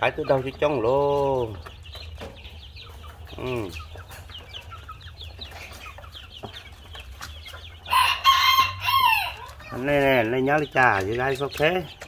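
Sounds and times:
baby chicks peeping: 0.0 - 12.0
harsh chicken call: 7.9 - 9.7.

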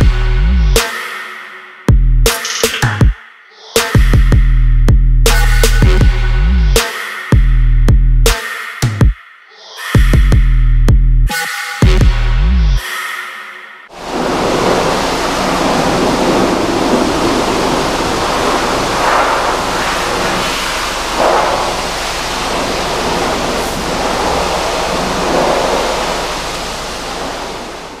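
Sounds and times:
pressure washer spray hissing: 14.1 - 28.0.

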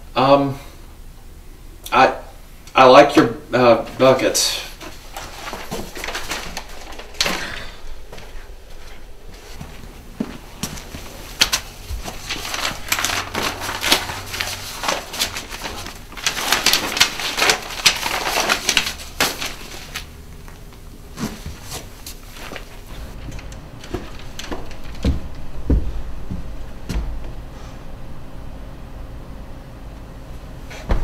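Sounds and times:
paper rustling and crinkling: 4.7 - 25.6.

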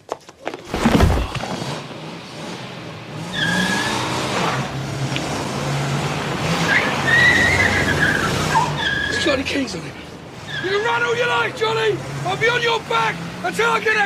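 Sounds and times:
tyres squealing: 6.5 - 14.0.

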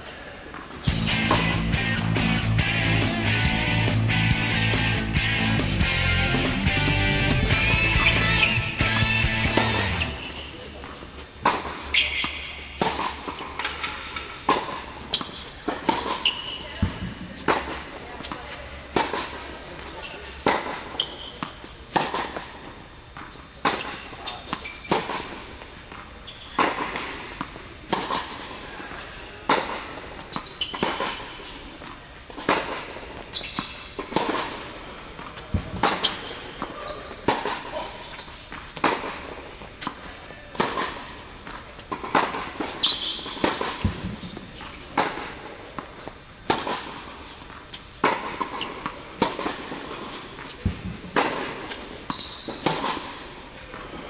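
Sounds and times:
racquets striking tennis ball: 0.5 - 2.4, 7.4 - 54.0
ball bouncing on hard court: 8.0 - 19.4, 23.2 - 28.4, 35.2 - 53.9.

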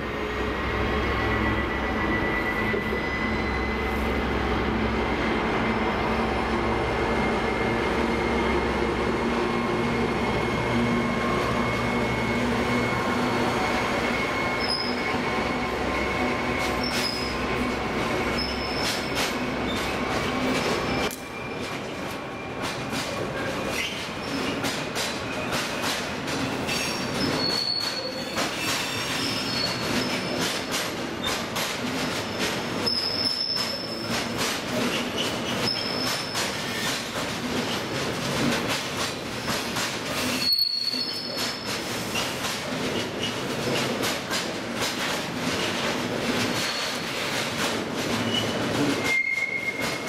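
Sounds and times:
train wheels rumbling on rail: 0.0 - 50.0
high-pitched wheel squeals: 1.1 - 4.1, 13.6 - 15.3, 16.6 - 17.5, 18.3 - 19.8, 26.6 - 30.3, 32.8 - 34.1, 35.2 - 36.9, 40.2 - 41.7, 48.3 - 50.0
clacks over rail joints: 18.4 - 50.0.

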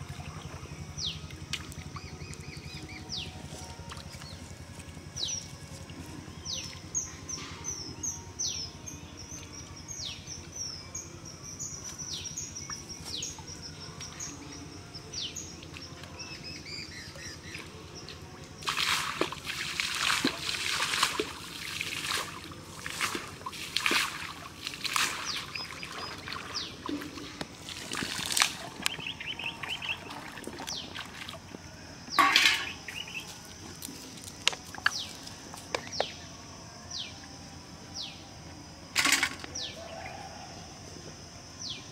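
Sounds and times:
water splashed by hand: 18.5 - 31.5
bird chirping: 28.6 - 31.0, 32.1 - 33.3.

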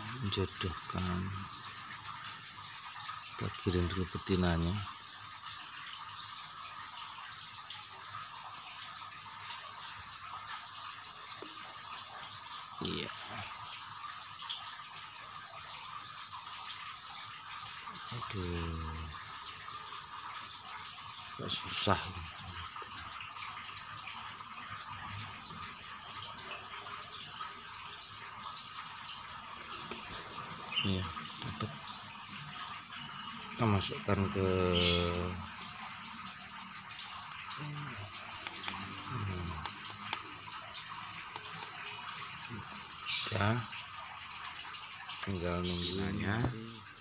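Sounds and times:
steady hiss of running water: 0.0 - 47.0.

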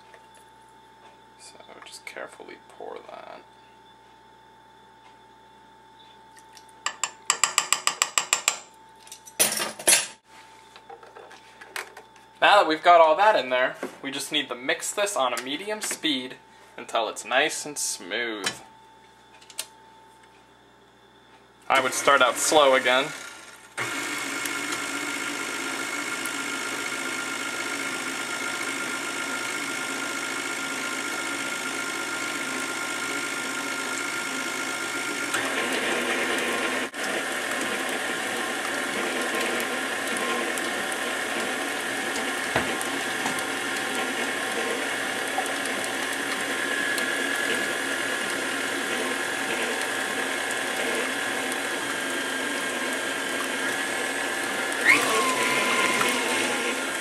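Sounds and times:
stand mixer whining: 21.7 - 57.0.

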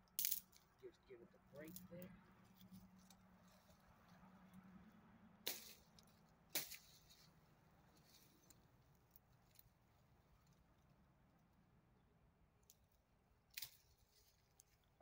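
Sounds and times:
tree branch snapping: 13.6 - 13.9.

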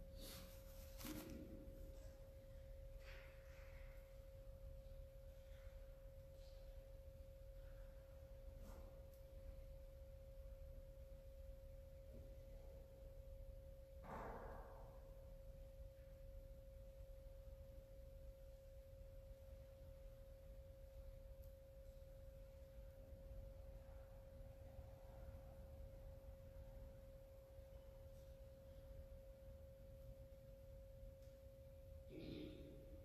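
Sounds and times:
faint steady pure tone: 14.9 - 33.0.

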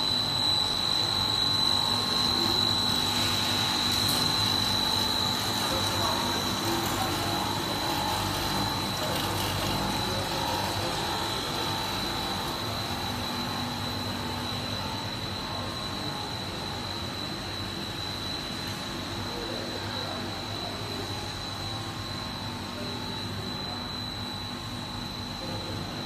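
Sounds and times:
high-pitched machine whine: 0.0 - 26.0
machinery hum: 0.0 - 26.0.

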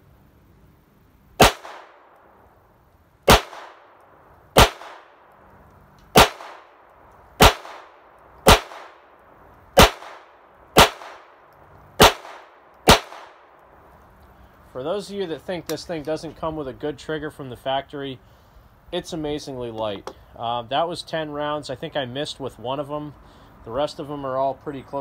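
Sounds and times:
pistol shots with echo: 1.4 - 2.2, 3.3 - 4.0, 4.6 - 5.2, 6.1 - 9.2, 9.8 - 11.4, 12.0 - 13.6.

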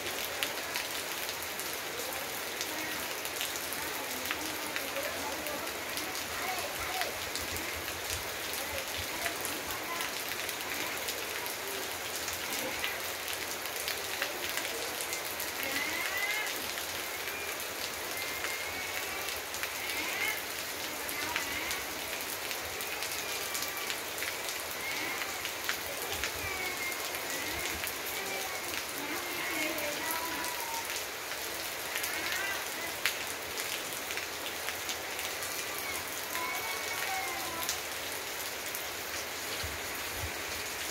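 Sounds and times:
rain on foliage: 0.0 - 40.9.

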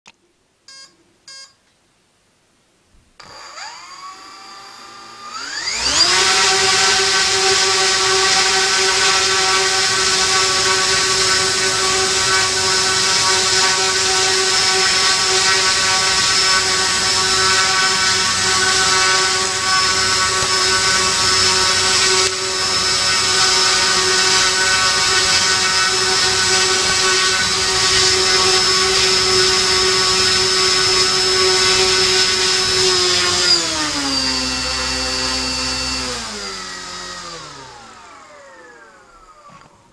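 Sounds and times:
short beeps: 0.7 - 1.6
electric motor and propellers whining: 3.2 - 39.9.

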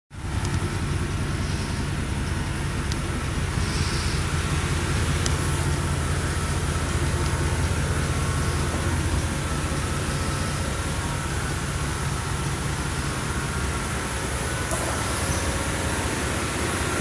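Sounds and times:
pickup engine idling: 0.2 - 17.0.

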